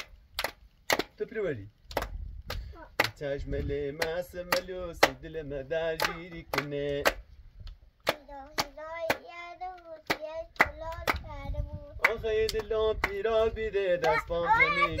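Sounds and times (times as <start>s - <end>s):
rhythmic hand clapping: 0.0s - 1.2s, 1.9s - 3.2s, 4.0s - 5.3s, 6.0s - 7.3s, 8.0s - 14.4s
voices singing along: 2.8s - 7.3s, 8.0s - 15.0s.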